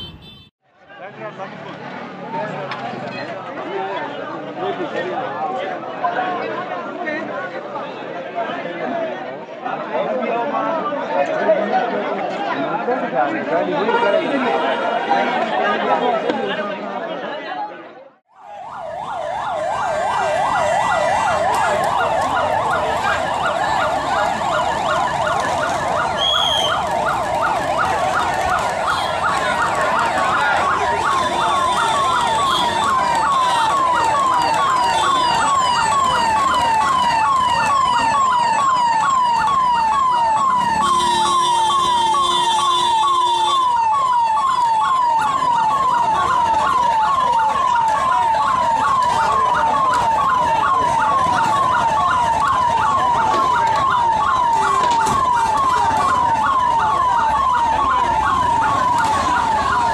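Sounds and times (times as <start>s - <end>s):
emergency siren yelping: 18.3s - 59.9s.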